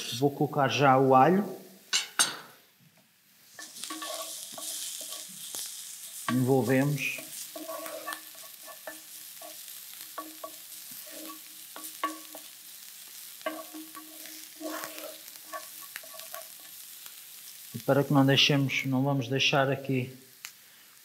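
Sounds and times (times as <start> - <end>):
faint sizzle: 0.0 - 21.0
wooden spoon scraping a pan: 3.4 - 17.9.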